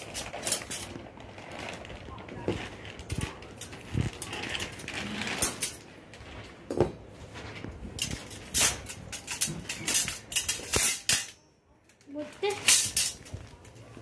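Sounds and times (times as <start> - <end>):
metal parts clinking: 8.0 - 11.4, 12.2 - 13.3.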